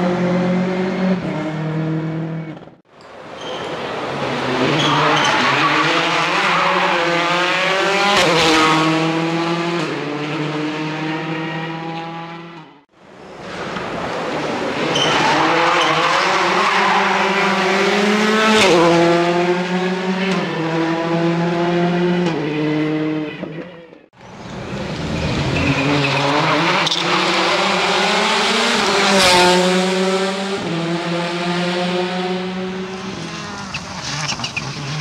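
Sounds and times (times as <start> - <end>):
rally car engines revving: 0.0 - 35.0
rally car passing: 3.2 - 12.8, 24.4 - 35.0.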